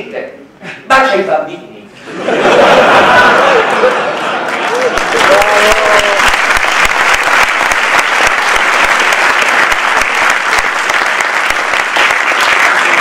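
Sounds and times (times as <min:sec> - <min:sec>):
audience applauding: 0:02.9 - 0:13.0.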